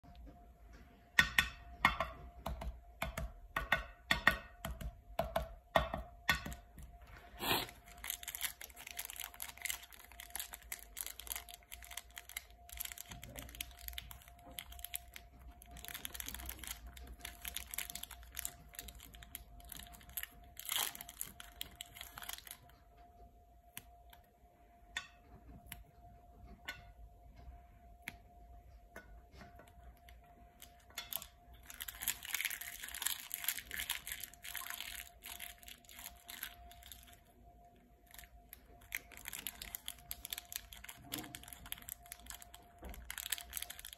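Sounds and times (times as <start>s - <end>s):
faint steady tone: 5.8s - 43.9s
plastic wrapper crinkling: 6.5s - 23.0s, 29.6s - 43.9s.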